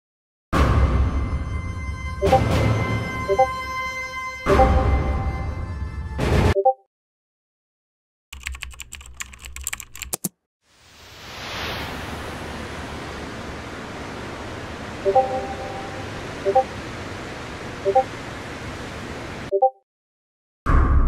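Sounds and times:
computer keyboard typing: 8.3 - 10.4.

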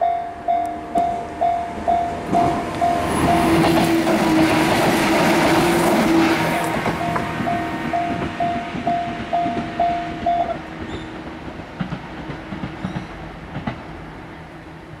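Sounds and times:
level crossing warning bell ringing: 0.0 - 3.8, 6.8 - 10.6
rumble of departing train: 0.0 - 15.0.

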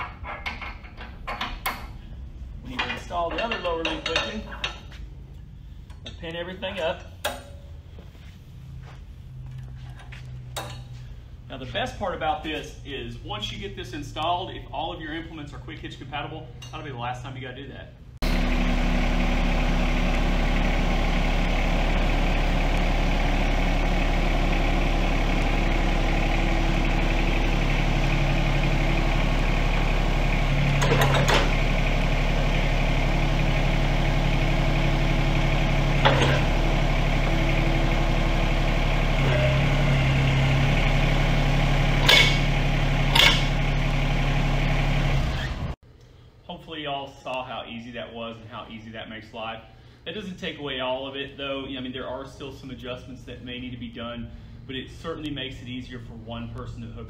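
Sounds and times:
tractor diesel engine idling: 18.2 - 45.4.

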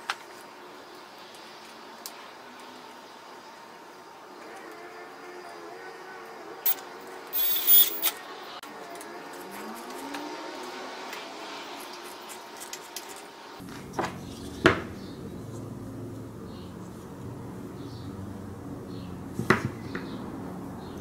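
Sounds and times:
hand tools clicking and scraping metal: 6.7 - 8.2, 11.8 - 13.3.

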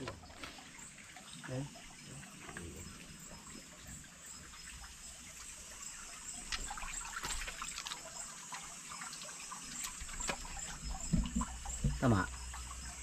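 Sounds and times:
stream trickling over rocks: 0.0 - 13.0.

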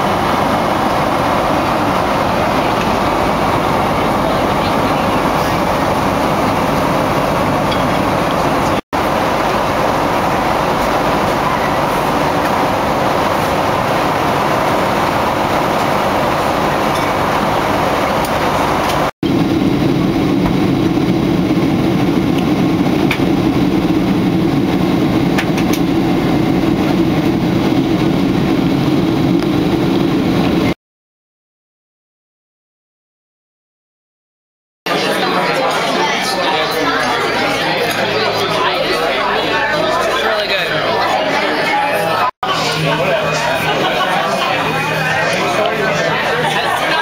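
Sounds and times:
airliner cabin engine rumble: 0.0 - 30.8.

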